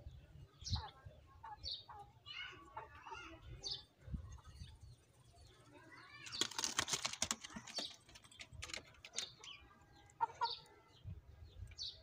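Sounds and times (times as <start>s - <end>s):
pigeons chirping: 0.0s - 12.0s
pigeons clicking and scratching: 4.4s - 10.8s.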